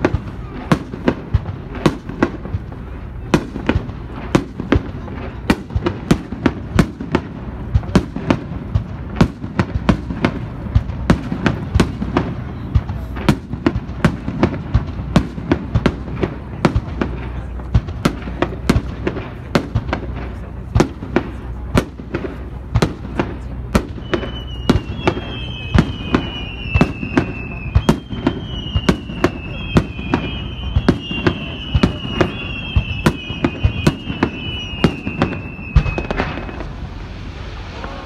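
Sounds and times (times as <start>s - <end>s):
steady low rumble: 0.0s - 24.0s, 34.4s - 38.0s
fireworks bangs and crackles: 0.0s - 38.0s.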